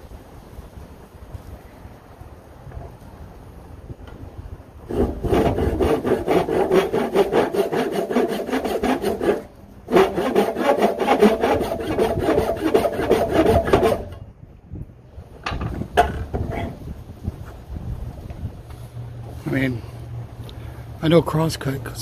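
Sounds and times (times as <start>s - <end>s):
hand saw cutting wood: 4.9s - 14.2s.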